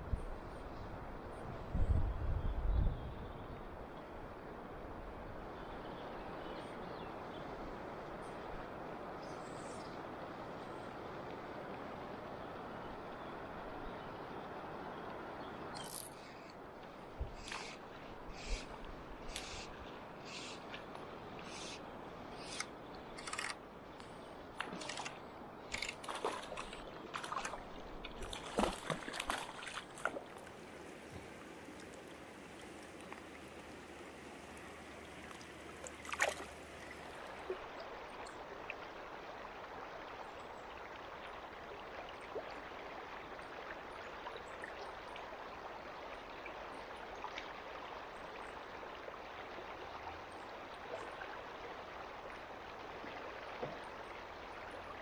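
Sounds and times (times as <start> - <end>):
river water gurgling over stones: 24.4 - 55.0
sharp splash: 28.2 - 30.4, 34.6 - 37.1
short splashes: 28.2 - 37.6.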